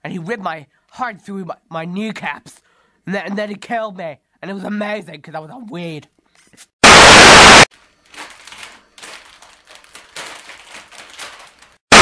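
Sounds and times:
loud static hiss burst: 6.8 - 7.7
faint crackling and rustling: 7.8 - 11.8.

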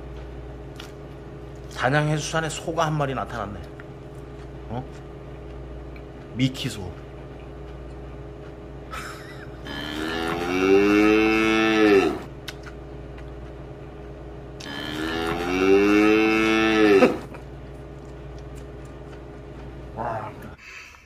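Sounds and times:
cow mooing: 9.6 - 12.3, 14.6 - 17.3.

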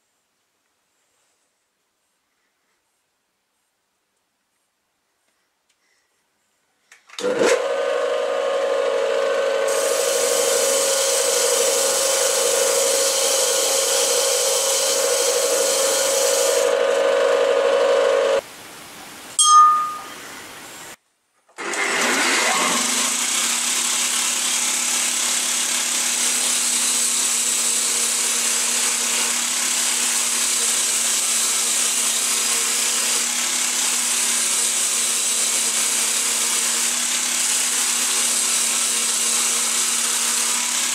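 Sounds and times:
belt grinder grinding blade: 7.2 - 18.4, 21.6 - 40.9
wire wheel brushing steel: 9.6 - 18.4
sharp metallic clink: 19.4 - 20.2.

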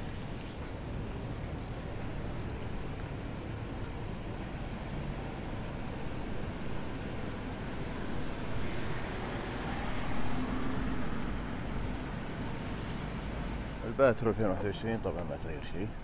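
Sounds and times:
car driving past slowly: 8.4 - 13.8.

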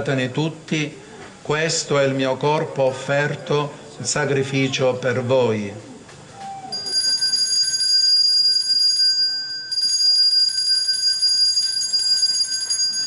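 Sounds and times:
altar bells jingling: 6.8 - 13.0.

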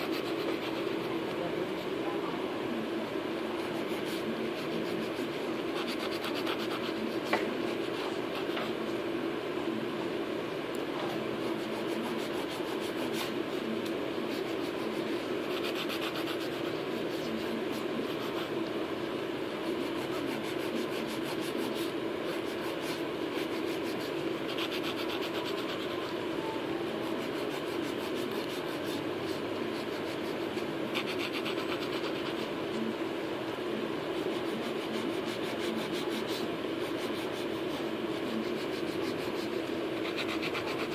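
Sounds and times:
nail file rasping: 0.0 - 1.0, 3.6 - 8.5, 11.4 - 13.4, 14.3 - 18.5, 19.6 - 26.0, 27.1 - 29.0, 29.7 - 32.5, 34.2 - 40.9
steady low hum: 0.0 - 40.9.

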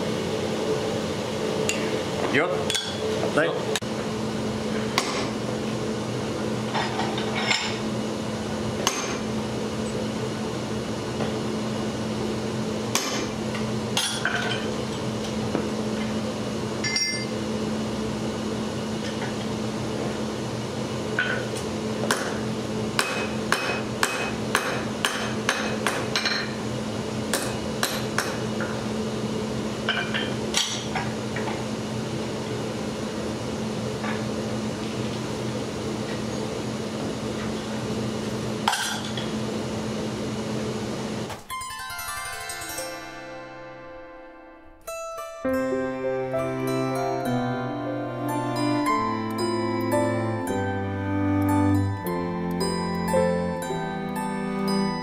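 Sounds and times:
steady machine hum: 0.0 - 55.0
hammer striking hot steel: 12.9 - 13.3, 23.0 - 26.5, 27.3 - 28.7.

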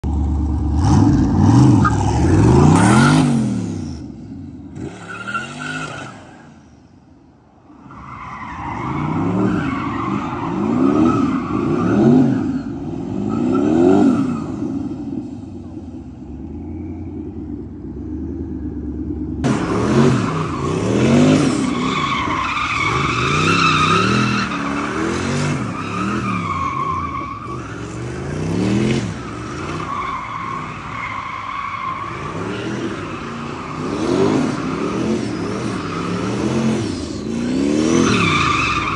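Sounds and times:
car engine revving: 0.4 - 4.0, 17.9 - 30.8
tires squealing: 0.8 - 4.0, 4.8 - 6.6, 7.7 - 17.3, 19.4 - 38.9.

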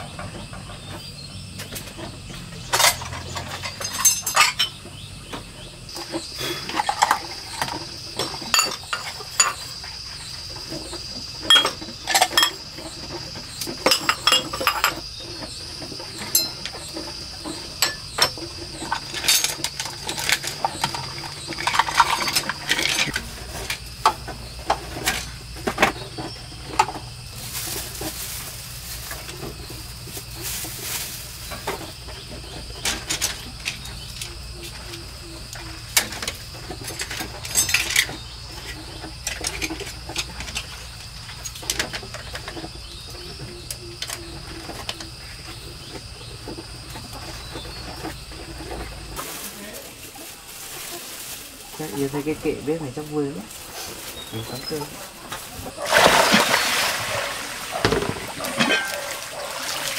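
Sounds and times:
bowls clinking: 2.6 - 4.8, 5.9 - 9.8, 10.9 - 15.1, 16.2 - 17.0, 17.6 - 28.8, 55.7 - 59.9.

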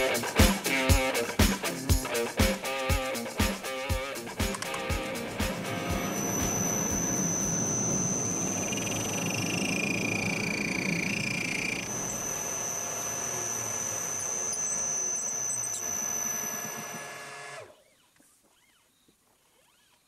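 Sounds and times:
metal lathe humming and whining: 4.5 - 17.7
cutting tool squeal: 5.6 - 18.8.

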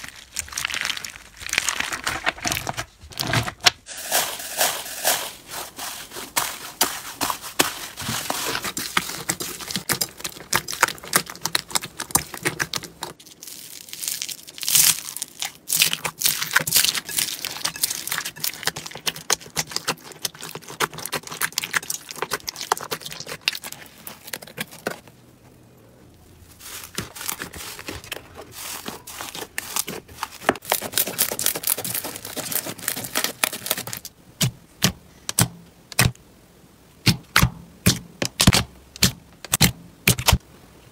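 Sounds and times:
slime crackling and popping: 0.0 - 2.8, 8.6 - 25.0.

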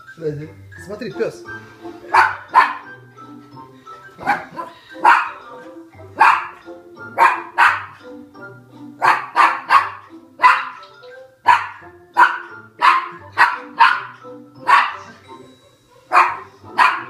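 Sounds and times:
small dog barking: 2.1 - 2.9, 4.2 - 5.5, 6.2 - 6.6, 7.2 - 8.0, 9.0 - 10.8, 11.5 - 15.1, 16.1 - 17.0.

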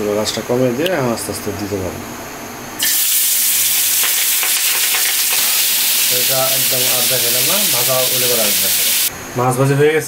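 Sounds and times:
fish sizzling in hot oil: 2.8 - 9.1.

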